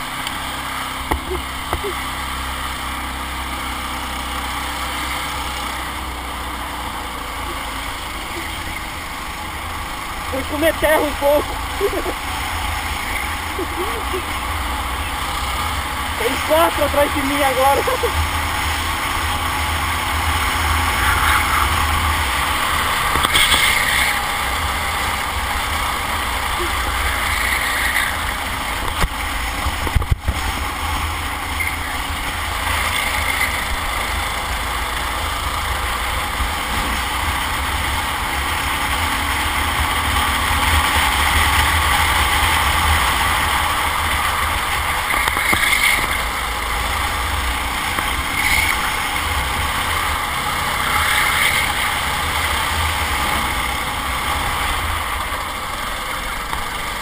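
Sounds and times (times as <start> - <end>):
kart engine racing: 0.0 - 57.0
wind noise on microphone: 29.7 - 30.5.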